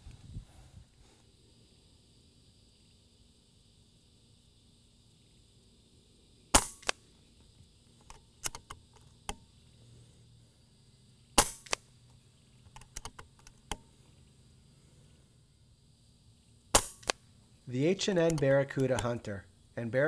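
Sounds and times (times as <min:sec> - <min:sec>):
air rifle shot cracks: 0:06.5 - 0:07.0, 0:11.4 - 0:11.9, 0:16.7 - 0:17.2
rifle action clicks: 0:06.6 - 0:07.0, 0:16.8 - 0:17.2.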